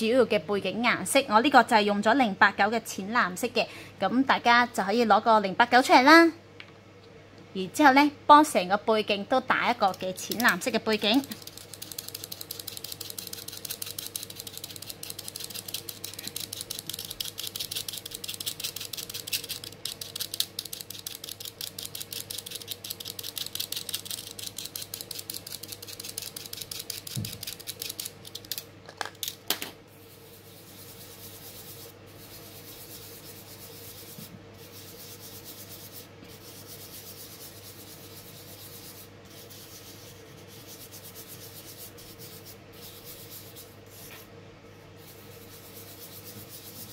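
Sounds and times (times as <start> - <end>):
fingers rubbing powder on paper: 9.7 - 28.6, 30.0 - 44.2, 45.0 - 46.9
knife blade scraping pastel stick: 9.8 - 28.6.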